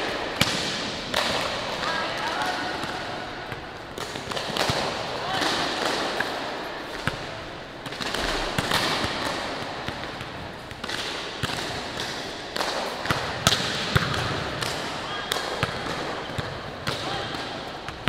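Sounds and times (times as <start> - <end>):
volleyball slaps and thuds: 0.0 - 6.4, 7.0 - 18.0
ball bouncing on hard floor: 7.9 - 18.0.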